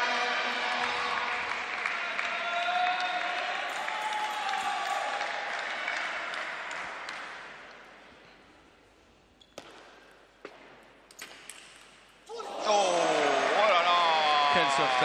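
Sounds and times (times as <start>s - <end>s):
crowd applause: 0.0s - 7.6s.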